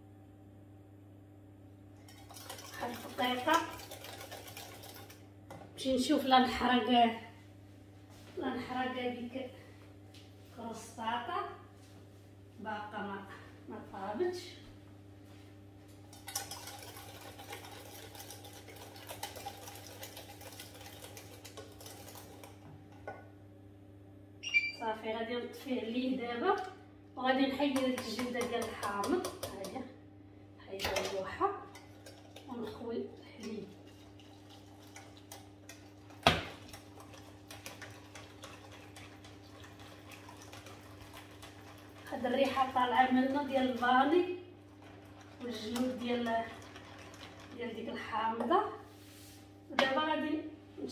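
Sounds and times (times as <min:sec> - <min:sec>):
whisk clicking in metal pan: 0:02.1 - 0:05.2, 0:16.2 - 0:22.6, 0:27.7 - 0:29.8
whisk clicking against saucepan: 0:02.2 - 0:05.2.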